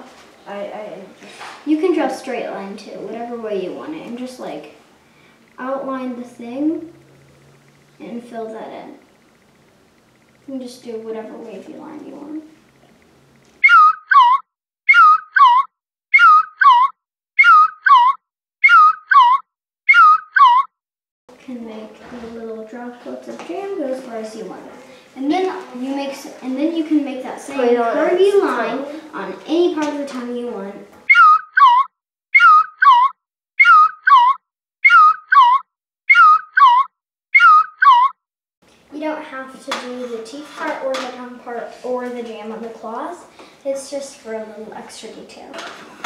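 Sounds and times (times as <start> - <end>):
two-note whistling squeak: 13.6 - 20.7, 31.1 - 38.1.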